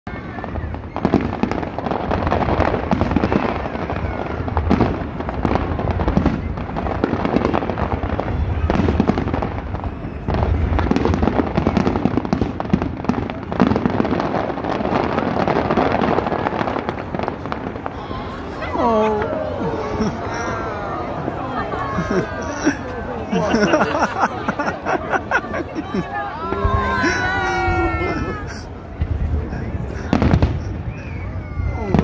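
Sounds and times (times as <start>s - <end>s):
fireworks bangs and crackling: 0.1s - 32.0s.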